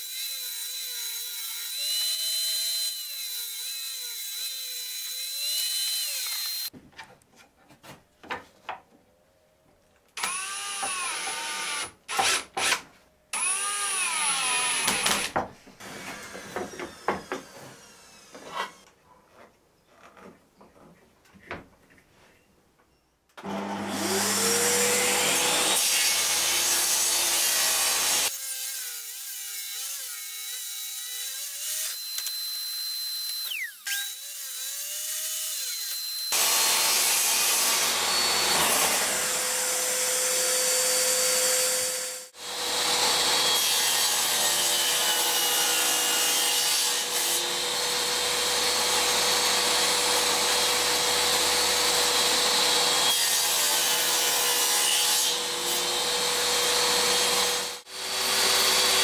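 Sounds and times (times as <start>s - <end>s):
saw cutting wood: 0.0s - 6.7s, 10.2s - 18.9s, 23.4s - 59.0s
table saw whine: 23.4s - 27.1s, 31.9s - 34.2s, 35.8s - 39.6s.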